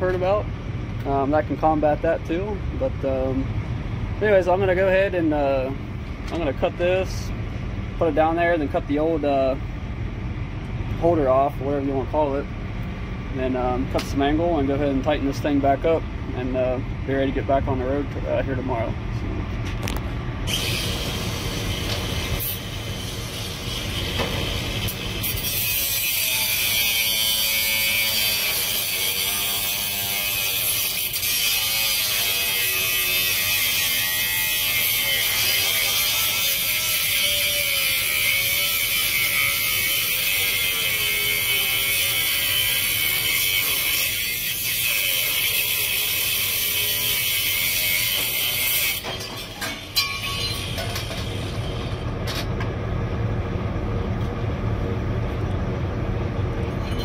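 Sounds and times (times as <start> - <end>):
angle grinder cutting steel: 20.5 - 52.0.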